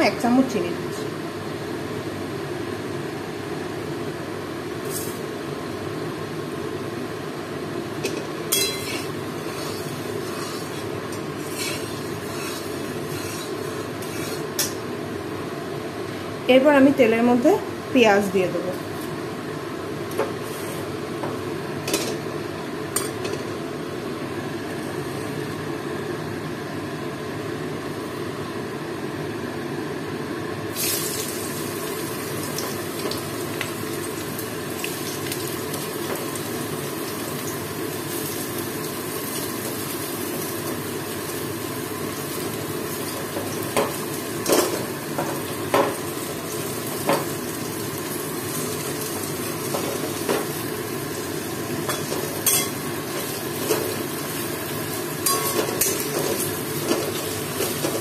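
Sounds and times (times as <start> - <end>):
onions sizzling in hot oil: 4.7 - 6.0, 7.5 - 16.2, 18.8 - 23.1, 30.7 - 58.0.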